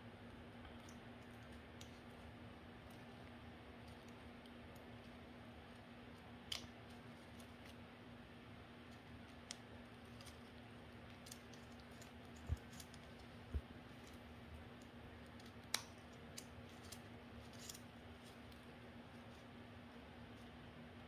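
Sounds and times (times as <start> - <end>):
faint steady hum: 0.0 - 21.0
scissors snipping paper: 15.2 - 18.6.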